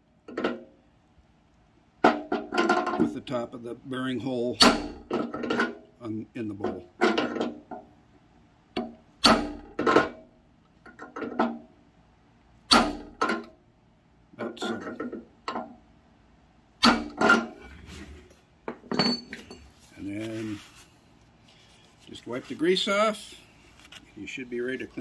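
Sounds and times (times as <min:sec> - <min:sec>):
sharp metal knocks: 0:02.0 - 0:03.1, 0:04.6 - 0:05.8, 0:08.8 - 0:10.3, 0:12.7 - 0:13.5, 0:16.8 - 0:17.6.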